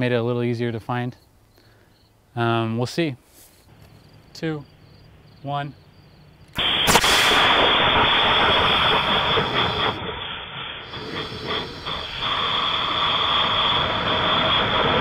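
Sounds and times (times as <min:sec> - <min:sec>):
wind rushing over microphone: 0:06.6 - 0:15.0.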